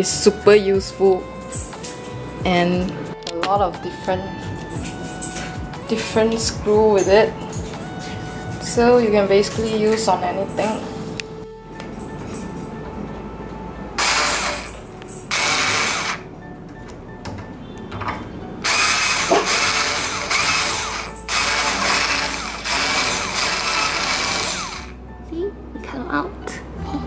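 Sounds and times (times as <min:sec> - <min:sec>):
cordless screwdriver whirring: 0:14.0 - 0:16.2, 0:18.6 - 0:24.9.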